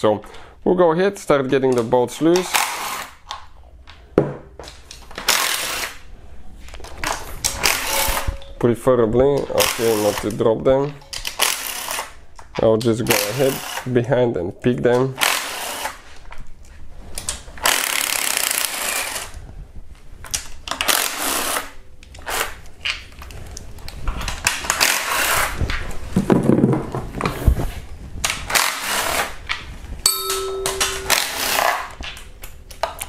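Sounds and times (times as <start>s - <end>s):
impact wrench hammering: 30.1s - 31.8s.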